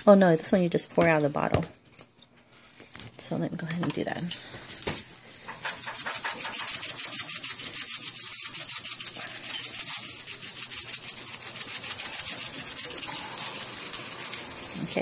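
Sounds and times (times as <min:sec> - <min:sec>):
seasoning bottle rattling: 0:04.7 - 0:15.0.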